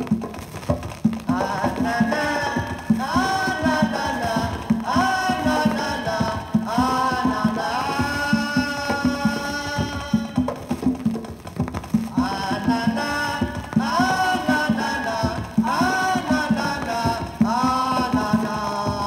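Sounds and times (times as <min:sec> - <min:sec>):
conga drums: 0:00.0 - 0:19.0
wordless vocal melody: 0:01.2 - 0:10.8, 0:12.1 - 0:19.0.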